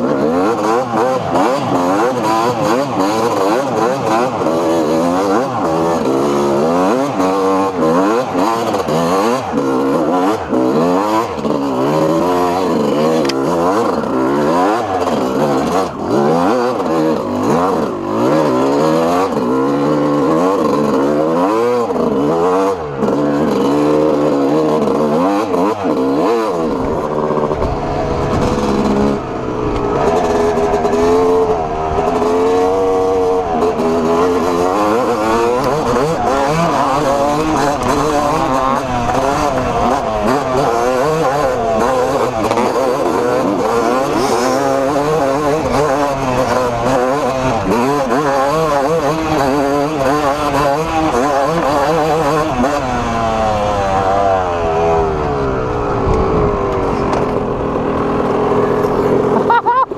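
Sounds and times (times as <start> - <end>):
two-stroke engine revving: 0.0 - 59.9
wind rumble on microphone: 26.6 - 32.1, 55.0 - 58.9.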